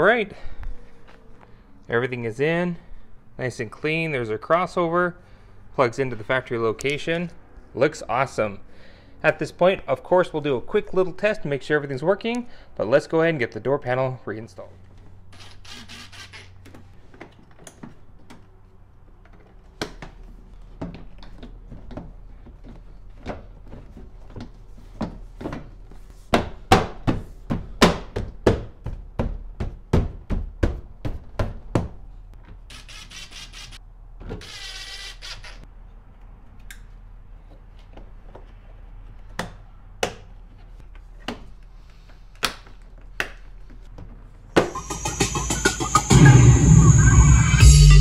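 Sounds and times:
cordless drill whirring: 0:15.4 - 0:16.5, 0:34.4 - 0:35.6.

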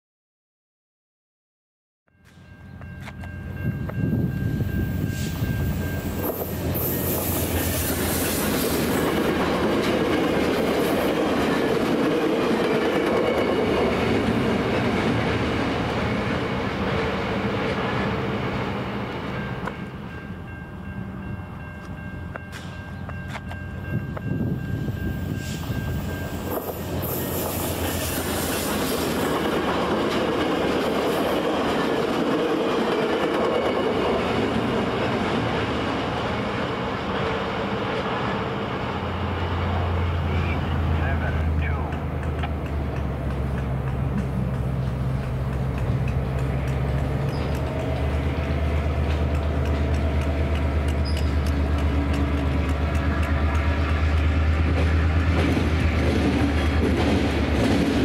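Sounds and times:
train wheels clattering: 0:21.8 - 0:38.1, 0:41.6 - 0:58.0.

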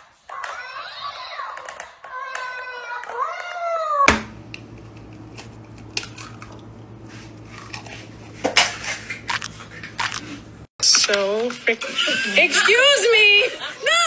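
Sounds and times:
steady low hum: 0:04.1 - 0:10.7
eggs cracking over a bowl: 0:04.1 - 0:11.6.

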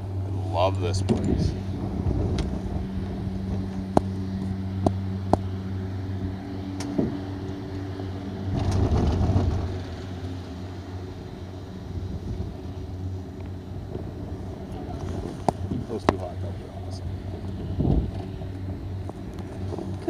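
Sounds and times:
gondola mechanical hum: 0:00.0 - 0:20.0.

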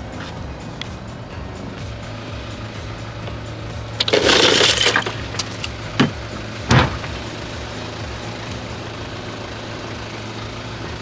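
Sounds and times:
ice cubes rattling against glass bottles: 0:04.0 - 0:05.7.

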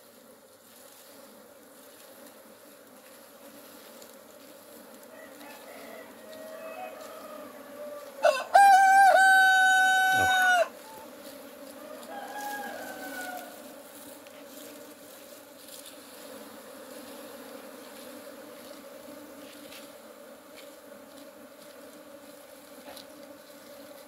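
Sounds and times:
honeybees humming: 0:00.0 - 0:24.0
rooster crowing: 0:05.1 - 0:11.1, 0:11.8 - 0:13.7.

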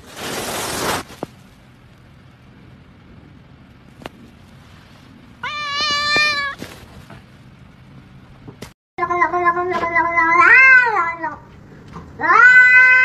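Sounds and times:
cat meowing: 0:05.4 - 0:06.6, 0:10.0 - 0:11.4, 0:12.2 - 0:13.0.

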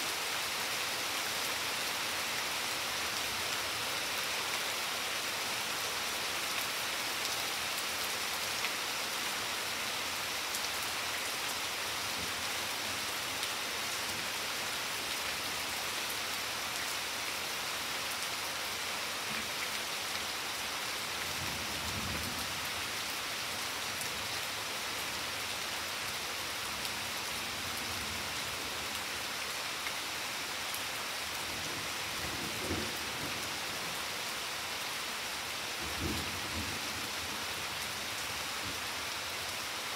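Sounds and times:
rain on a patio: 0:00.0 - 0:39.9.

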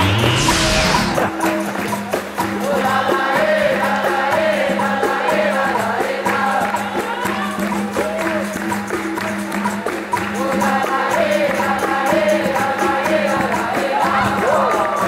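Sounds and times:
group singing: 0:00.0 - 0:08.1, 0:10.2 - 0:15.0
tambourine percussion: 0:00.0 - 0:15.0
hand clapping: 0:06.3 - 0:12.3.

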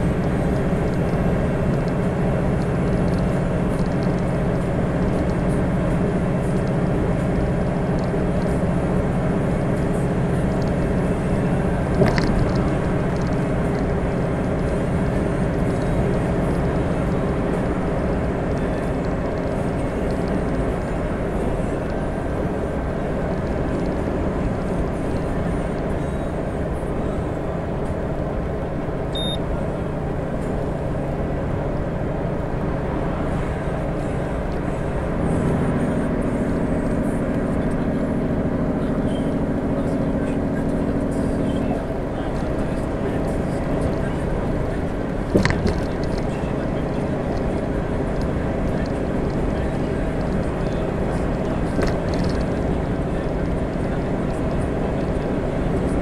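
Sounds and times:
diesel truck engine running: 0:00.0 - 0:56.0
short high beep: 0:29.1 - 0:29.4.

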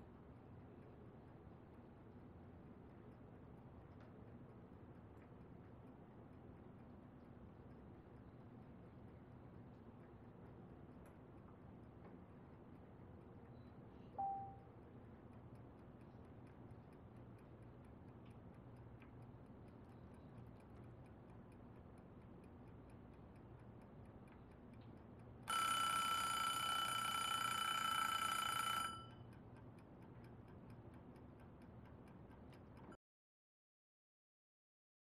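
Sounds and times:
low room hum: 0:00.0 - 0:33.0
clock ticking: 0:15.3 - 0:26.6, 0:27.2 - 0:32.9
alarm clock ringing: 0:25.5 - 0:29.2.

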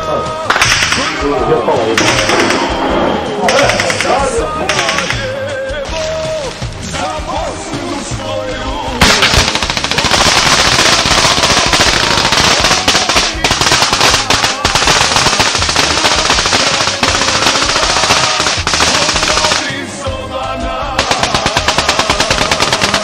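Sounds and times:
faint song: 0:00.0 - 0:09.9, 0:12.5 - 0:23.0
automatic gunfire bursts: 0:02.0 - 0:02.7, 0:09.0 - 0:19.8, 0:21.0 - 0:23.0.

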